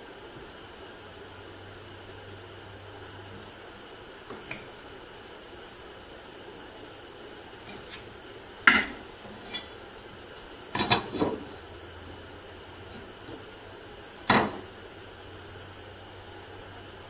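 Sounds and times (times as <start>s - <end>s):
faint steady hiss: 0.0s - 17.0s
wooden pieces knocking on workbench: 8.7s - 9.0s.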